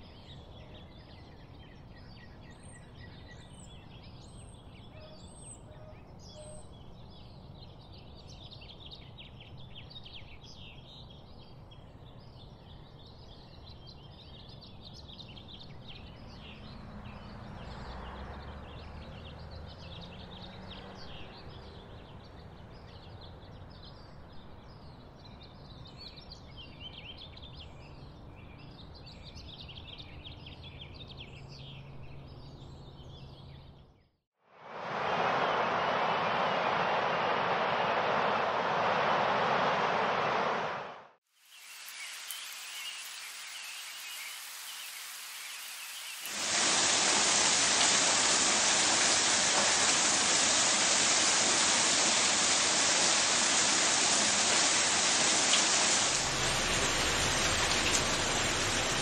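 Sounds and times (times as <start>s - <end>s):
insects chirring: 41.4s - 49.4s.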